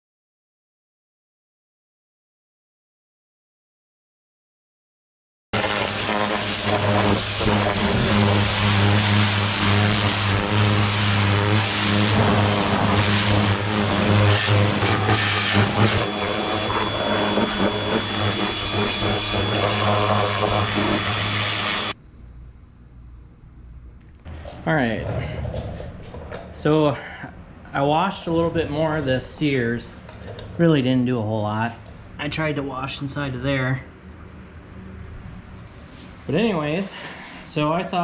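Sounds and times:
pressure washer motor humming: 5.6 - 22.0
water jet hissing on metal: 5.6 - 22.0
thin high whine: 5.6 - 38.0.

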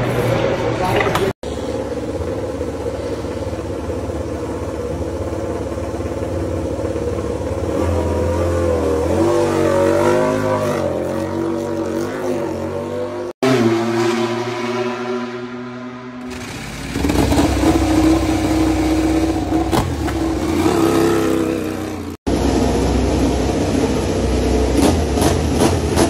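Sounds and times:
motorcycle engine idling: 1.4 - 7.7.

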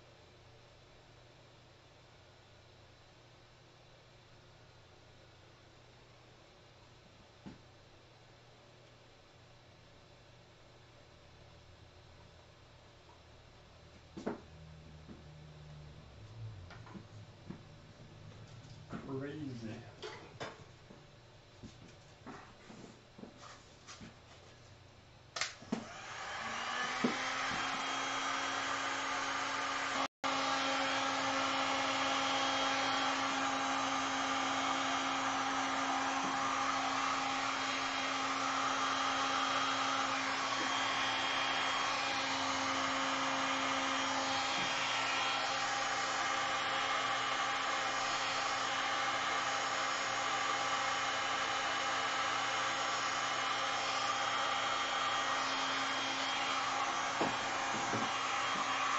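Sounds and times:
heat gun fan blowing: 14.2 - 21.0, 25.4 - 58.9.

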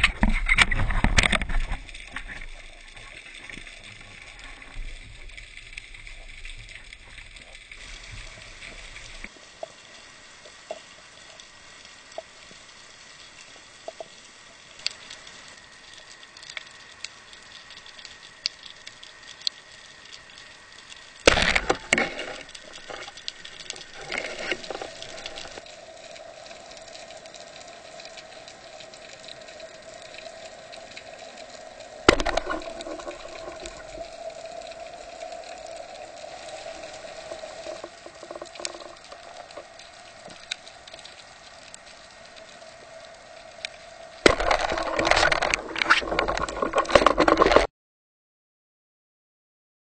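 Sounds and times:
faint clicks: 0.0 - 47.7.

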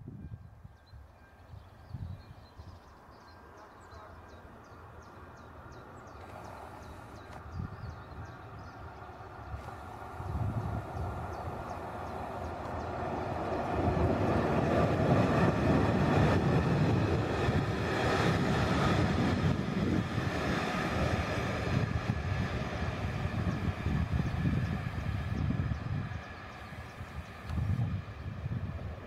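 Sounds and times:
train coaches passing: 0.9 - 29.0
train wheels rumbling on rail: 5.5 - 29.0.

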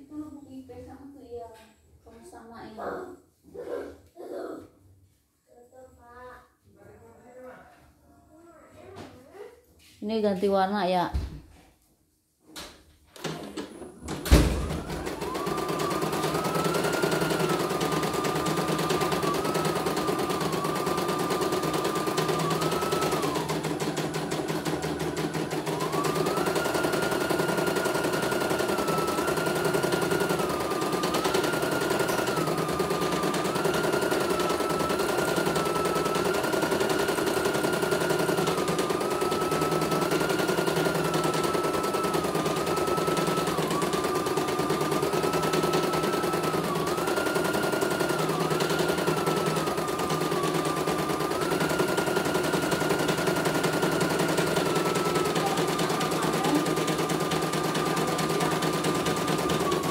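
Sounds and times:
motor whine: 13.2 - 59.9.

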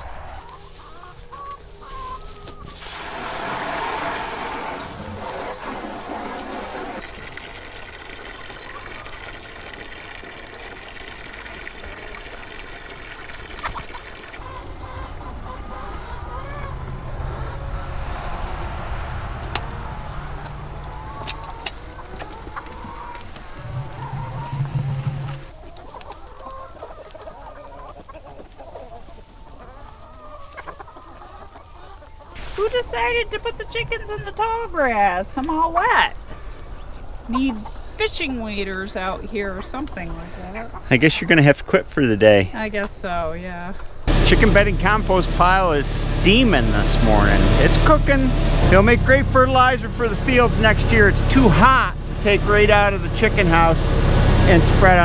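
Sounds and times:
low hum: 0.0 - 1.2, 14.4 - 25.6, 44.1 - 55.0
hens clucking: 0.0 - 55.0
water rushing from a hose: 2.7 - 14.5, 32.4 - 32.8.

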